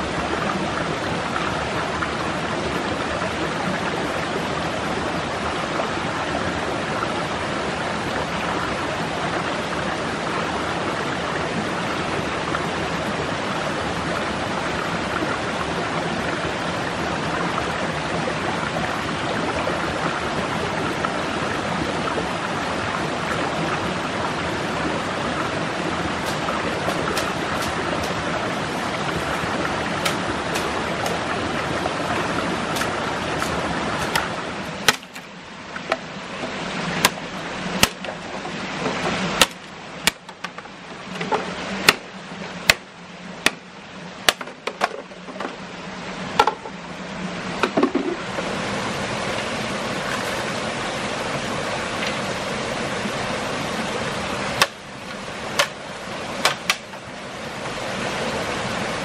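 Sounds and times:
stream water rushing: 0.0 - 59.0
sharp knocks: 30.0 - 31.2, 32.8 - 35.3.

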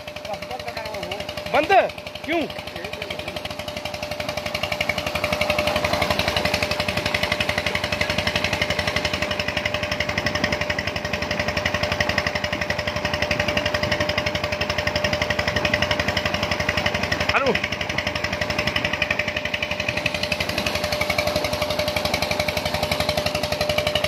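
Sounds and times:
diesel engine running: 0.0 - 24.0
steady whine: 0.0 - 24.0
water gushing from pipe: 0.0 - 24.0.

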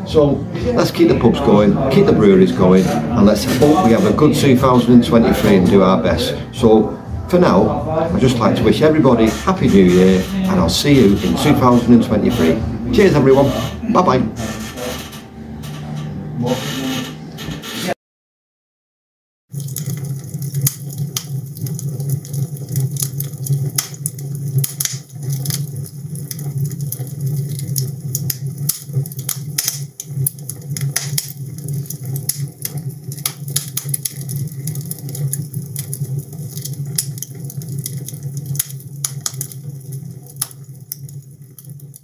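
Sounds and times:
steady low hum: 0.0 - 17.7
fire crackling and popping: 0.6 - 6.6, 7.3 - 16.7, 19.5 - 42.0.

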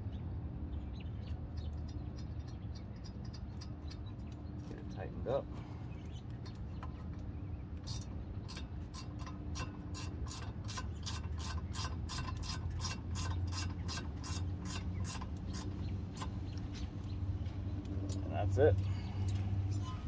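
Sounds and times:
steady low hum: 0.0 - 20.0
ratchet wrench clicking: 7.9 - 16.3.

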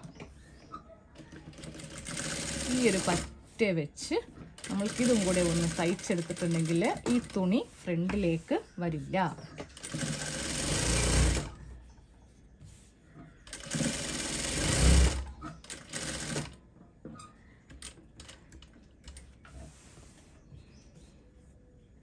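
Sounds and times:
sewing machine stitching: 1.2 - 3.4, 4.6 - 7.5, 9.6 - 11.6, 13.5 - 16.6.

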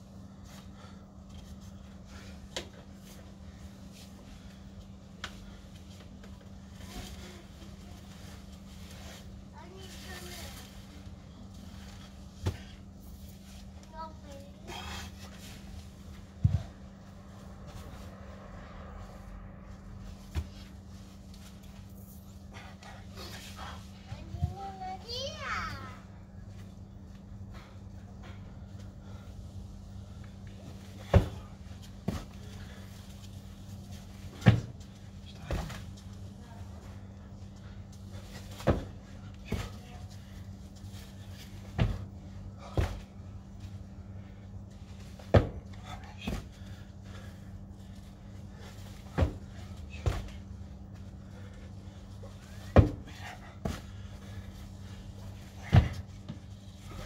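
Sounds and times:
steady low hum: 0.0 - 57.0
dumbbells thudding on turf: 31.0 - 32.4, 38.5 - 39.8, 41.7 - 43.1, 45.2 - 46.6, 49.1 - 50.4, 52.4 - 54.3, 55.6 - 56.4.

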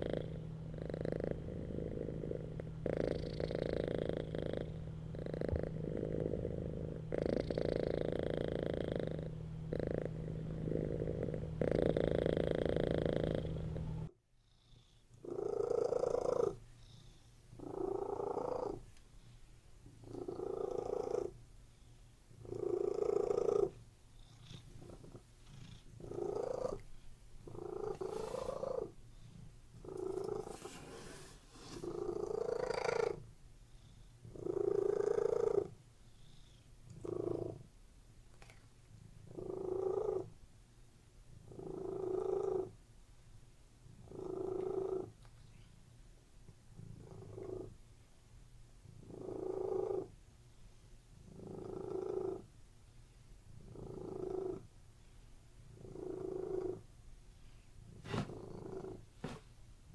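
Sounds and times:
cat purring: 0.0 - 40.4, 41.3 - 42.8, 43.9 - 45.8, 46.7 - 47.8, 48.8 - 50.2, 51.1 - 52.6, 53.4 - 59.9.

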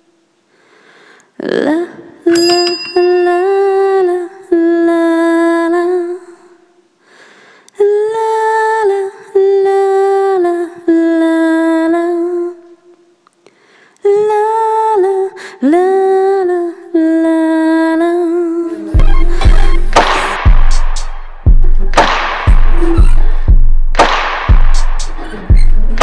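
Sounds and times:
woman humming a slow tune: 22.7 - 23.3.

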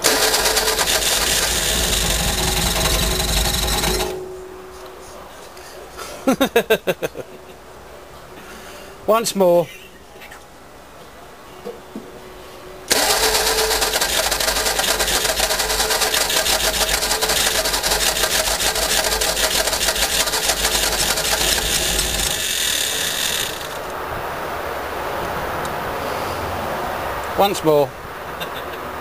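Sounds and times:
engine cranking on starter motor: 0.0 - 4.3, 12.9 - 23.9.

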